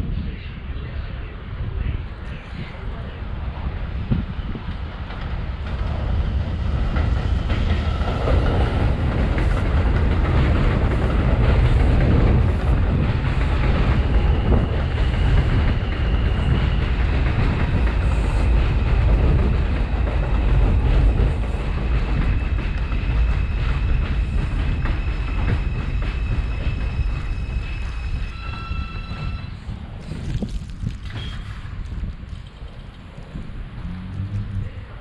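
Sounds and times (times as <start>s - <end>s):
train wheels rumbling on rail: 0.0s - 35.0s
clickety-clack: 6.8s - 28.4s.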